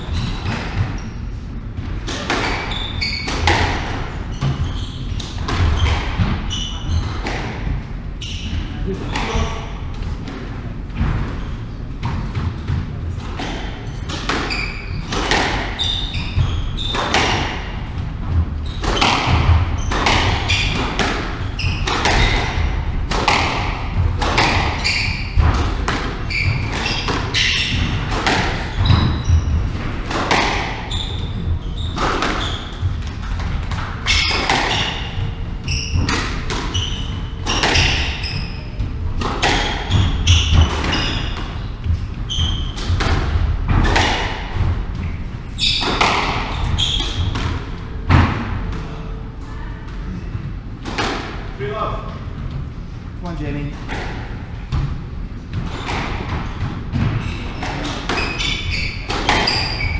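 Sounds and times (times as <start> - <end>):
squash ball hits: 1.8 - 7.8, 8.5 - 48.9, 53.8 - 59.9
shoes squeaking on wooden floor: 2.4 - 7.3, 13.4 - 23.6, 24.3 - 47.5, 55.5 - 59.9.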